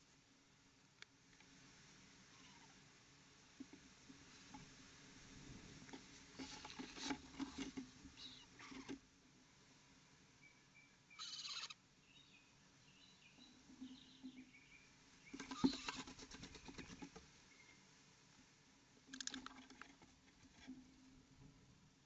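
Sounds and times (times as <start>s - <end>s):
claws scratching on wood: 6.4s - 8.9s.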